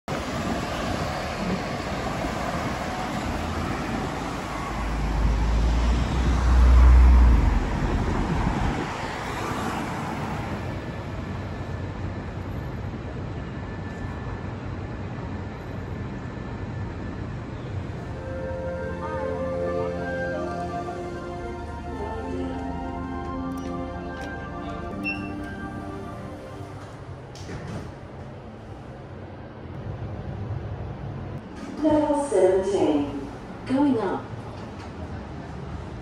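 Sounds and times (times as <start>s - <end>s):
cars passing: 0.1s - 12.0s, 18.1s - 27.8s.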